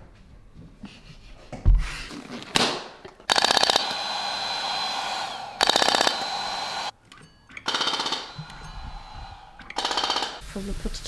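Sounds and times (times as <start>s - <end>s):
rapid clicking of applicator: 3.3s - 6.9s, 7.6s - 8.6s, 9.6s - 10.4s.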